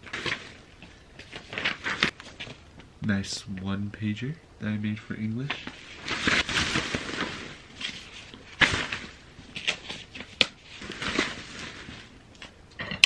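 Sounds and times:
papers dropped into bag: 0.0s - 2.6s, 5.5s - 12.6s
plastic bag rustling: 0.0s - 2.7s, 5.4s - 12.6s.

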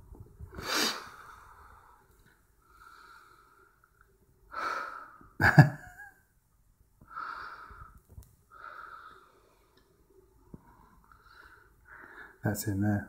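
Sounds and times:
person breathing close to microphone: 0.4s - 3.8s, 7.0s - 9.8s, 10.5s - 12.4s.

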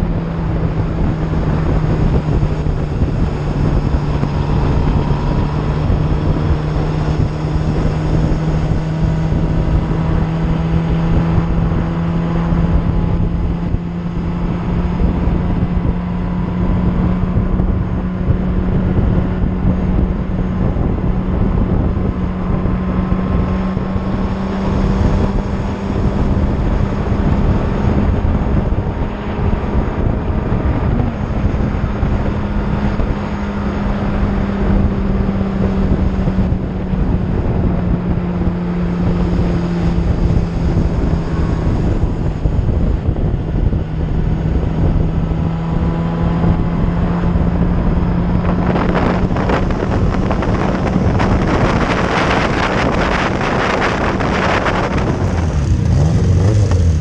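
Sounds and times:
motorcycle engine cruising: 0.0s - 57.0s
wind noise on microphone: 0.0s - 57.0s.

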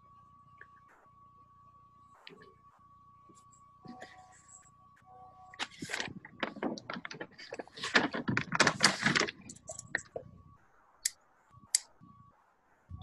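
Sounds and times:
rustling and clattering: 5.6s - 10.4s.

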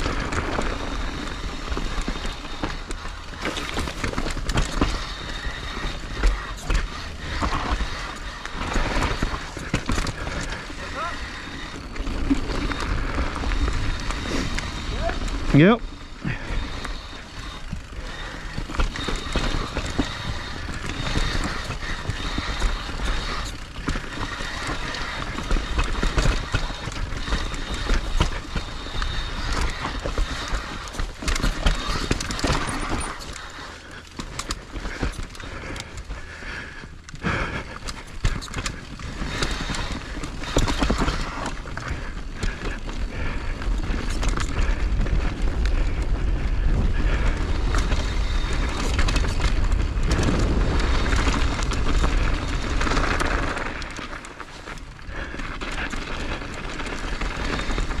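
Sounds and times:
skis scraping on snow: 0.0s - 34.0s, 46.5s - 58.0s
wind rumbling on microphone: 0.0s - 58.0s.

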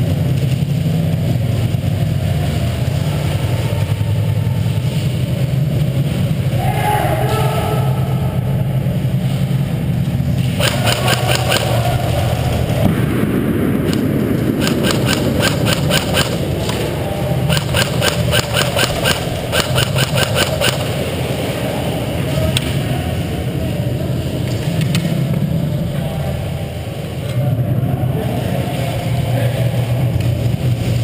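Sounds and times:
low steady hum: 0.0s - 31.0s
airsoft guns firing rapid clicks: 10.6s - 11.8s, 14.6s - 16.8s, 17.5s - 20.9s.

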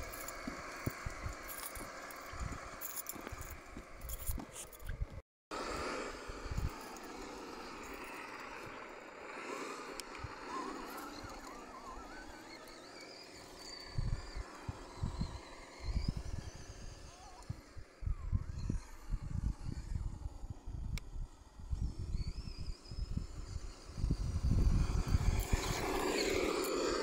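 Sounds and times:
faint wildlife chirping: 6.6s - 19.1s
wind buffeting microphone: 13.8s - 27.0s.

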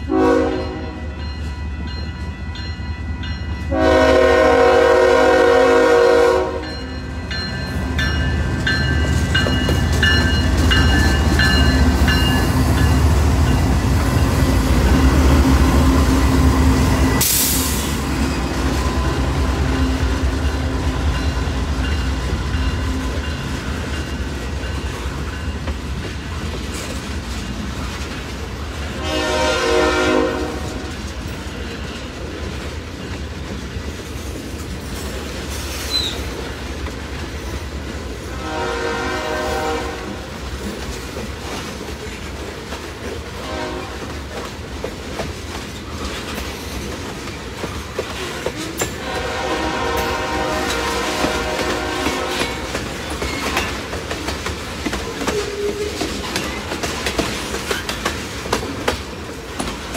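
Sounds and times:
train horn: 0.0s - 1.2s, 3.7s - 7.0s, 28.8s - 31.0s, 38.2s - 40.4s, 43.3s - 44.2s, 48.4s - 53.0s
diesel locomotive engines rumbling: 0.0s - 59.9s
train wheels on rails: 0.0s - 59.9s.

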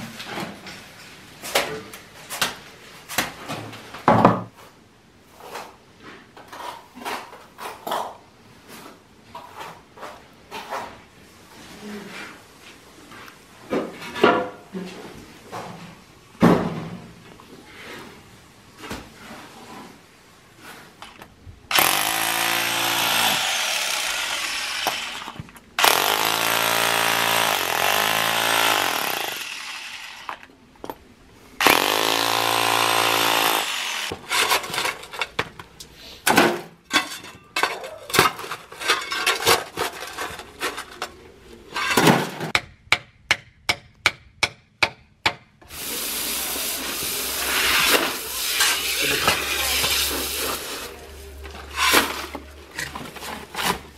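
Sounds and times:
rotary hammer drill boring: 21.7s - 30.4s, 31.6s - 34.1s.

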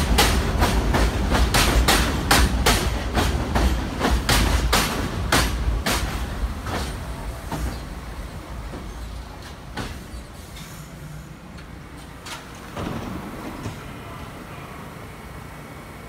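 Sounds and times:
subway train rumble: 0.0s - 16.0s.

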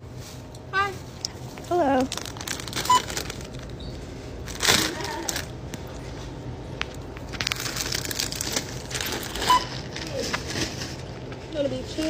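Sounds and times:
foil snack bag crinkling: 1.8s - 3.8s, 4.4s - 5.6s, 7.2s - 11.2s.

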